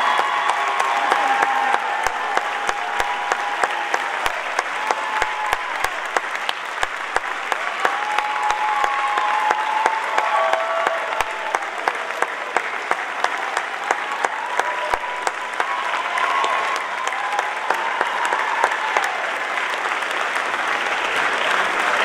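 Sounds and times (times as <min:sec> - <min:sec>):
sharp claps close by: 0:00.0 - 0:15.8
audience applauding: 0:00.0 - 0:22.0.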